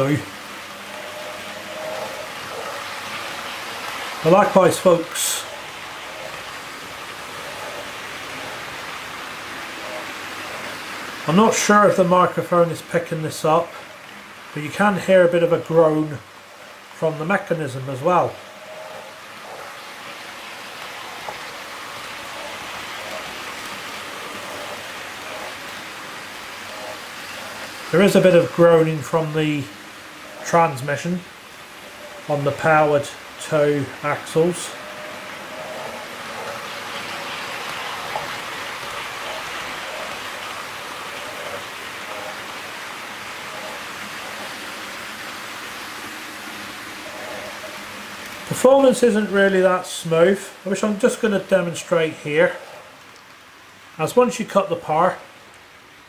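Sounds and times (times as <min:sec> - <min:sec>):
model train transmission groaning: 0:00.0 - 0:55.6
model train wheels rolling on rail: 0:00.0 - 0:56.0.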